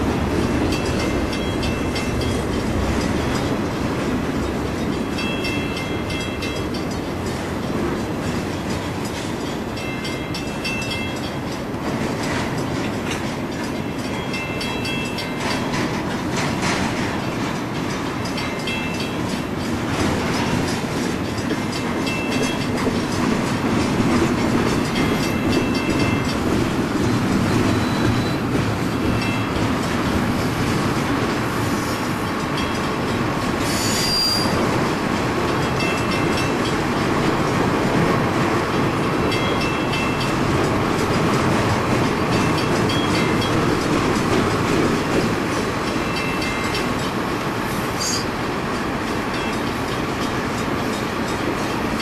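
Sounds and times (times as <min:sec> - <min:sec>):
train wheels rumbling on rail: 0:00.0 - 0:52.0
high wheel squeals: 0:27.4 - 0:28.5, 0:33.6 - 0:34.6.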